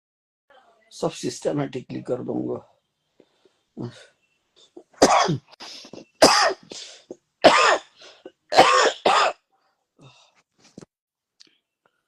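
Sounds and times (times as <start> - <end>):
man coughing: 4.8 - 9.4.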